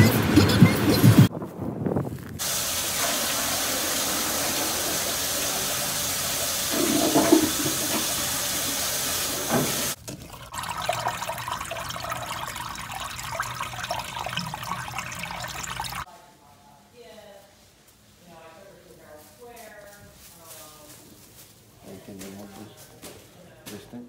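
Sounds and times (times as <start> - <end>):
water running down drain pipe: 2.4 - 16.1
water rushing through toilet: 2.4 - 16.1.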